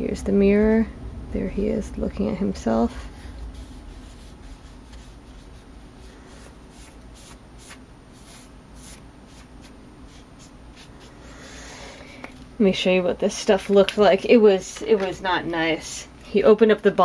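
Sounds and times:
faint room hum: 0.0 - 17.0
marker drawing on paper: 3.5 - 11.1.

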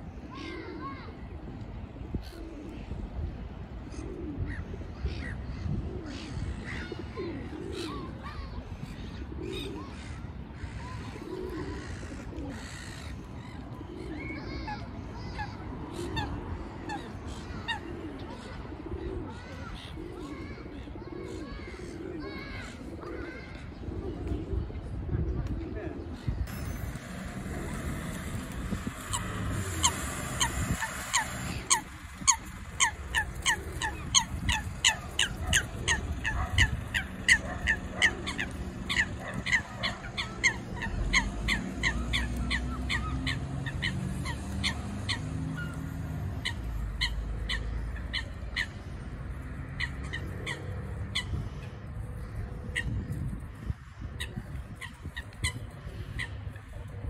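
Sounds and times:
coots calling: 26.3 - 53.1.

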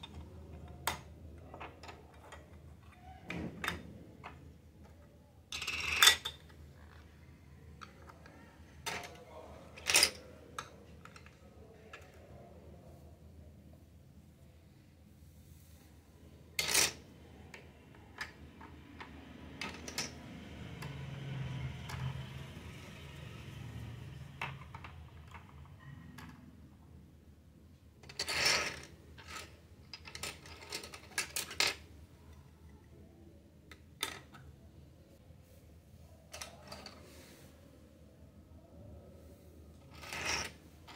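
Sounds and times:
plastic toy dishes clattering: 19.0 - 20.2.

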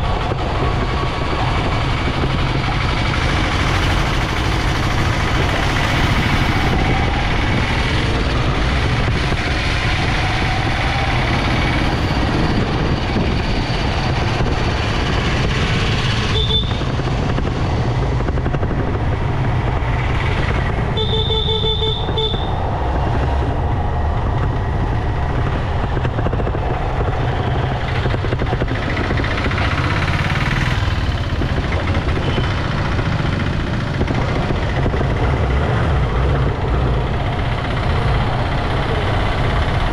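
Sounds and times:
motorcycle engine and wind: 0.0 - 39.9
vehicle horn honking: 16.3 - 16.8, 20.9 - 22.6.

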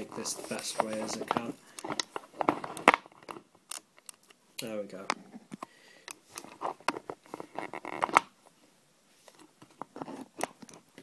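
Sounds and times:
handling clicks and taps: 0.0 - 4.4.

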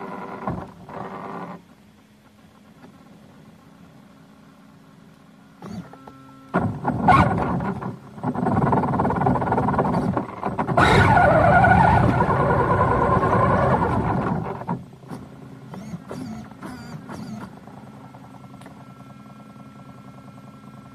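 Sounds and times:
electric motor whining: 5.6 - 17.6.

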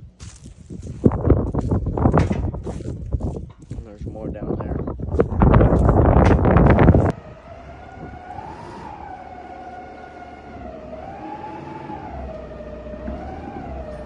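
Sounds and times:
siren wailing: 6.6 - 14.0.

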